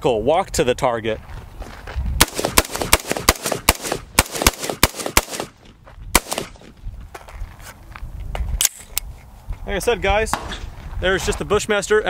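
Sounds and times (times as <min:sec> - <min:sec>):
rifle gunshots: 0:02.2 - 0:06.7.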